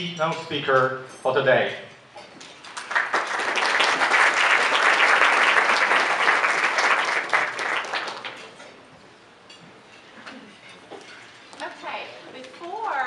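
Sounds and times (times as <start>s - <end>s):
audience applauding: 2.7s - 8.6s.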